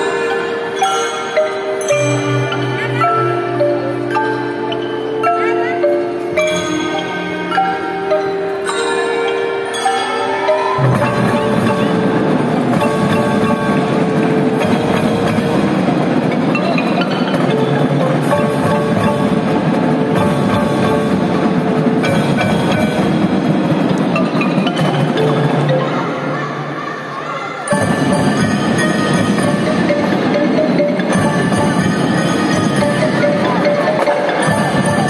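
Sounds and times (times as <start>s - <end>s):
marching band playing: 0.0s - 26.0s, 27.7s - 35.0s
marimbas and xylophones: 0.0s - 35.0s
drums: 6.0s - 26.2s, 27.6s - 35.0s.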